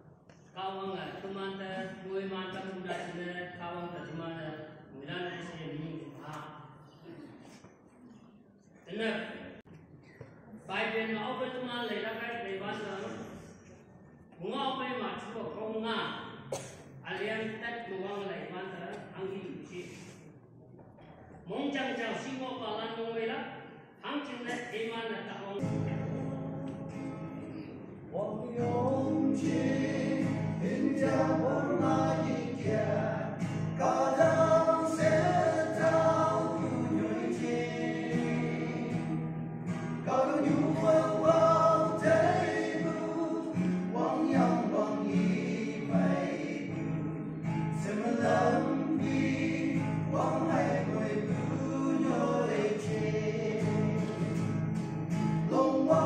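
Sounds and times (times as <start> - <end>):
men singing gospel: 28.6 - 39.2, 40.0 - 54.3, 55.5 - 56.0.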